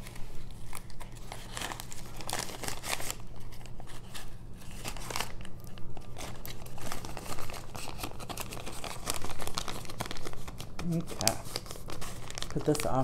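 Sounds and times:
plastic bags crinkling: 0.0 - 13.0.

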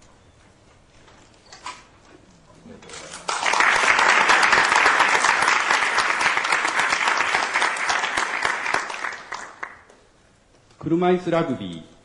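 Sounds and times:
audience applauding: 3.1 - 9.9.

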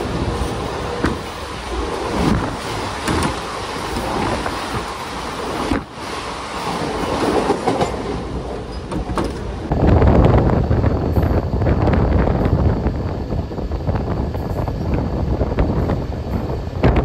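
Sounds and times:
electric train rumbling on track: 0.0 - 17.0.

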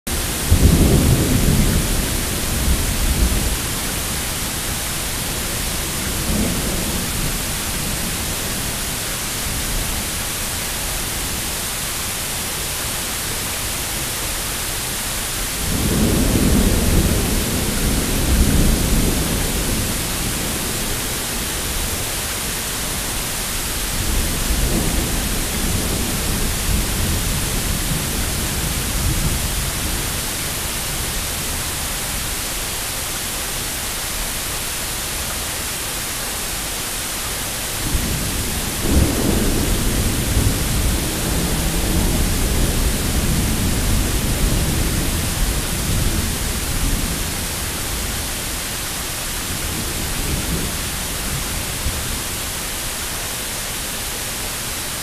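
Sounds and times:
thunder rolling: 0.1 - 8.2, 37.8 - 48.3
rain hissing: 0.1 - 55.0.

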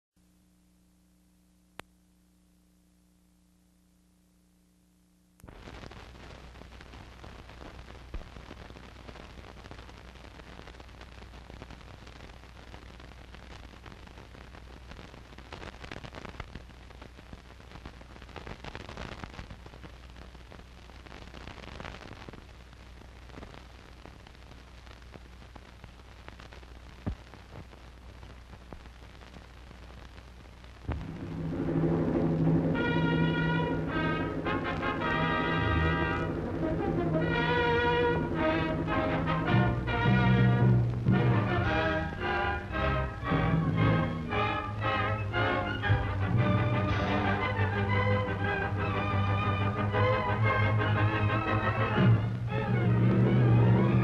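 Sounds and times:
film soundtrack hiss and crackle: 0.0 - 54.0
low hum: 0.2 - 6.2, 30.7 - 54.0
orchestral music: 31.0 - 54.0.

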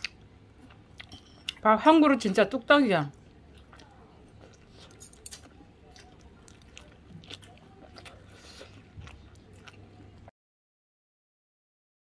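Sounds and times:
person chewing: 0.0 - 1.6, 3.1 - 10.3.

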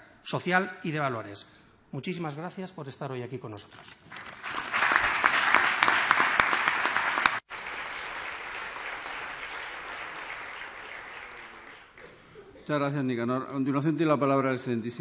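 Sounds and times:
audience applauding: 4.1 - 12.3.

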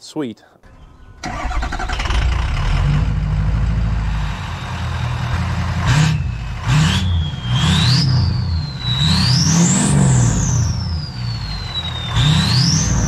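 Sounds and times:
diesel truck engine idling and revving: 0.7 - 13.0
turbo whistle: 4.3 - 13.0.

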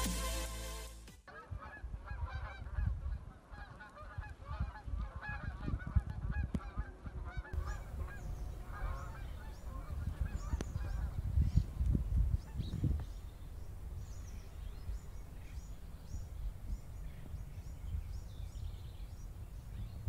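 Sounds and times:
wind rumbling on microphone: 1.5 - 20.0
flock of birds calling: 6.7 - 11.7.

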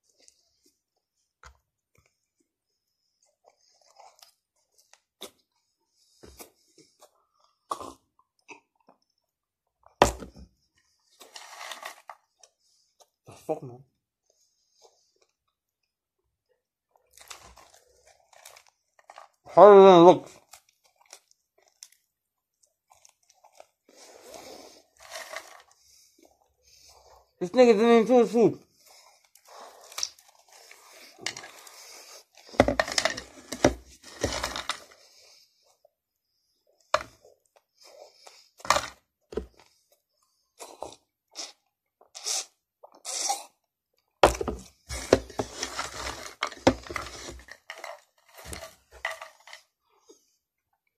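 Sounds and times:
person chewing fries: 20.4 - 24.2.

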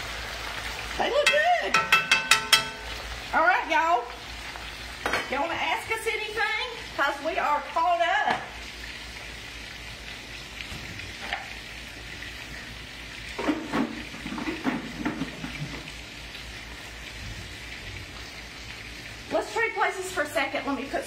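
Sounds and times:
food sizzling in skillets: 0.0 - 21.0.

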